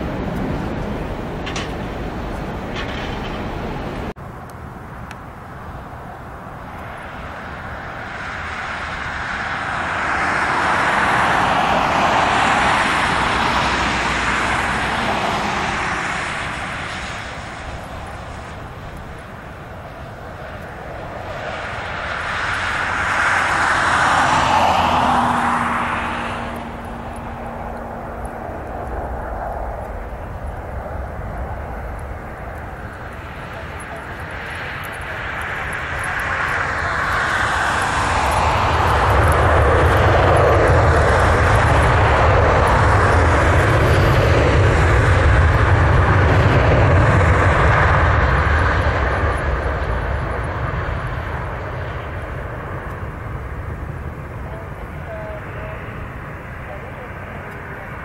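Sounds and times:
jet engines rushing: 0.0s - 58.0s.

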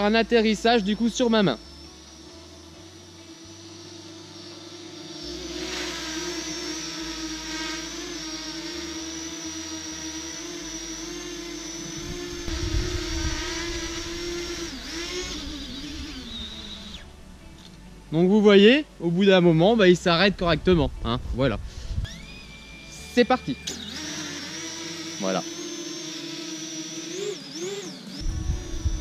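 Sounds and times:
drone propellers whining: 0.0s - 29.0s
wind rumble on microphone: 12.0s - 14.6s, 20.3s - 22.2s, 28.2s - 29.0s.

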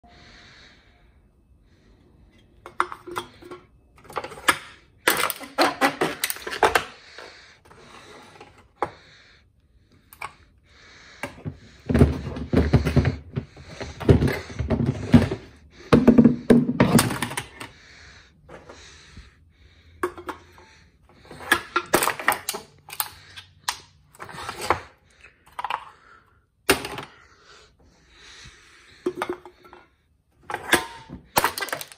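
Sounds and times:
cans being crushed: 2.7s - 7.0s, 21.1s - 26.1s, 30.4s - 31.9s.

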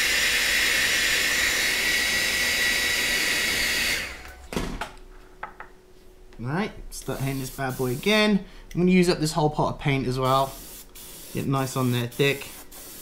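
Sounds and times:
hair dryer blowing: 0.0s - 4.4s.

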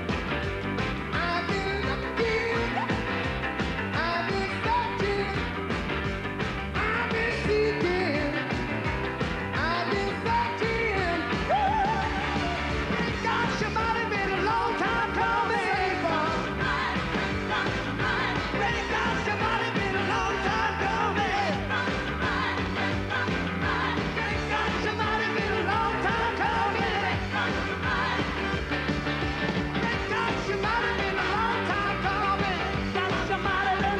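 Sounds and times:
live rock and roll band: 0.0s - 33.9s
piano: 0.0s - 33.9s
man singing: 1.1s - 3.0s, 3.9s - 5.5s, 6.8s - 8.6s, 9.6s - 16.6s, 18.5s - 21.7s, 24.0s - 27.7s, 29.8s - 33.9s.

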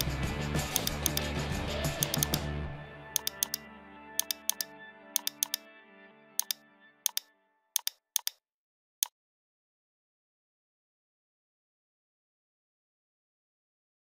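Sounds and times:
background music: 0.0s - 8.3s
computer keys clicking: 0.7s - 1.3s, 2.0s - 2.4s, 3.2s - 3.6s, 4.2s - 5.6s, 6.4s - 8.4s.

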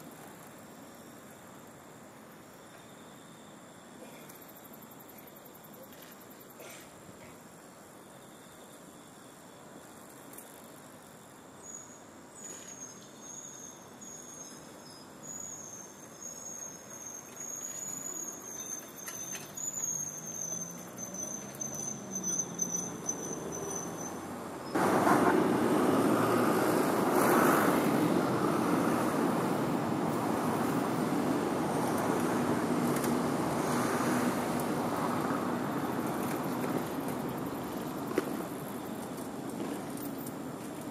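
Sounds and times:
high wavering insect trill: 13.2s - 24.8s.

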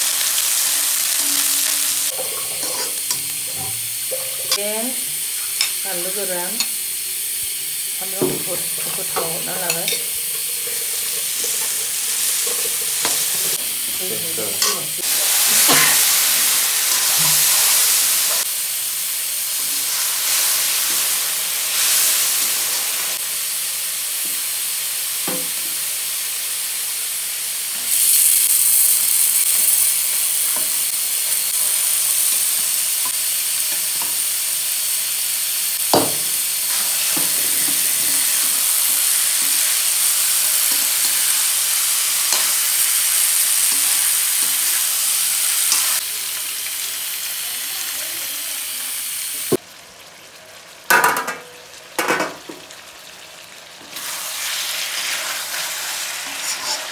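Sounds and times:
food sizzling in a wok: 0.0s - 56.9s
spatula scraping pan: 2.1s - 4.8s, 55.0s - 56.9s.

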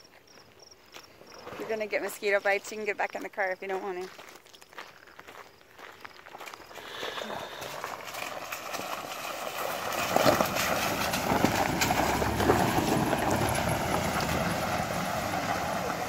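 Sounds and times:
tyres crunching over gravel: 0.0s - 16.0s
truck engine running: 8.8s - 16.0s.

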